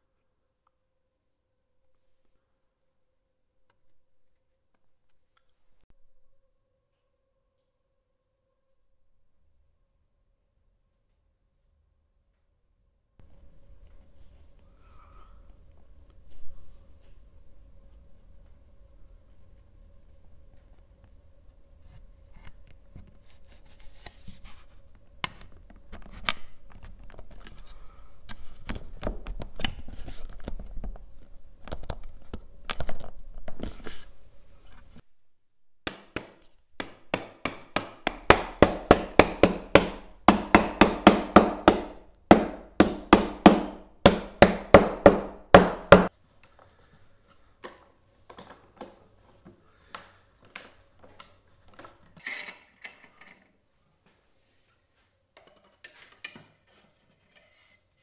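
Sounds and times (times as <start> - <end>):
mallet knocking wood: 35.9 - 46.1.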